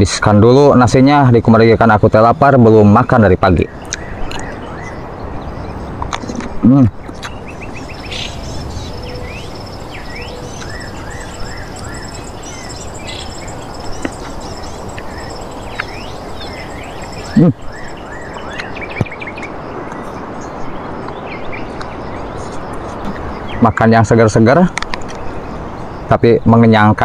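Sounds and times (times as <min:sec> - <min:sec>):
birds chirping: 0:02.1 - 0:23.9
background hiss: 0:04.5 - 0:20.6
insects trilling: 0:07.0 - 0:19.8.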